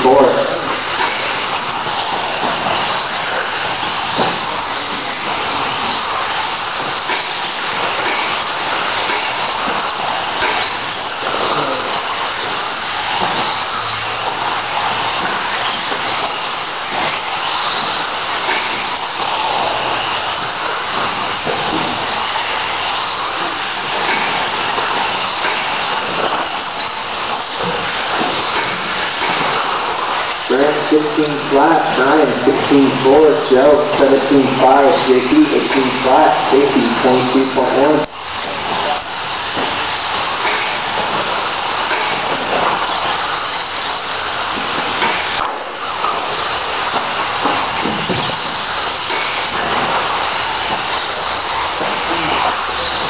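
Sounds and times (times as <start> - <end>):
rc cars whirring on dirt: 0.0 - 21.4
rc car motors whirring: 0.0 - 53.0.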